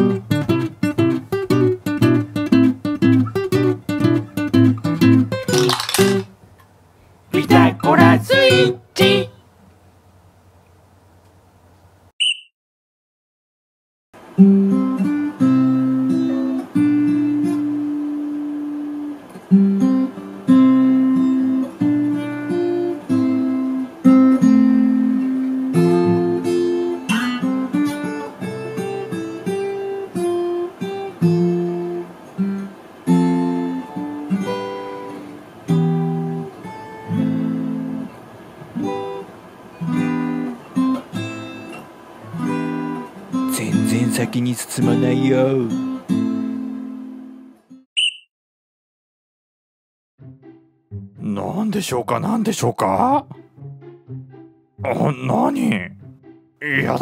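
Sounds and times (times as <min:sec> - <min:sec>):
acoustic guitar strumming chords: 0:00.0 - 0:06.3, 0:07.3 - 0:09.4, 0:14.2 - 0:47.6.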